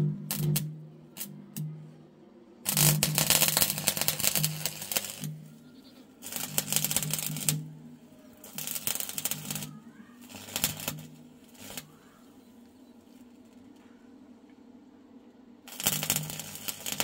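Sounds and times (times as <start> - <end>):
welding arc crackling: 0.0 - 1.7, 2.7 - 5.6, 6.2 - 12.0, 15.7 - 17.0.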